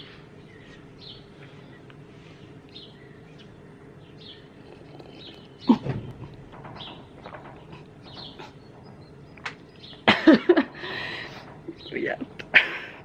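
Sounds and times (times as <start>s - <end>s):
small bird chirping: 2.7s - 10.1s.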